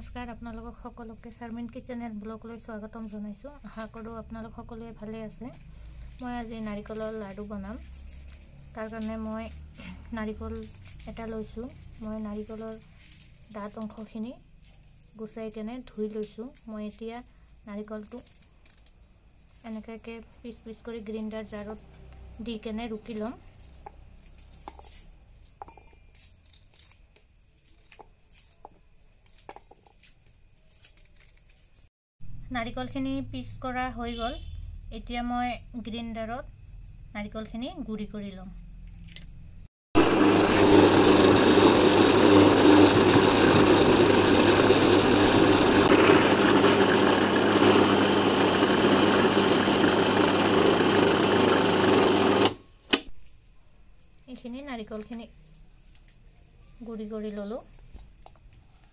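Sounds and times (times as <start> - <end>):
mixer grinder motor running: 40.0 - 52.6.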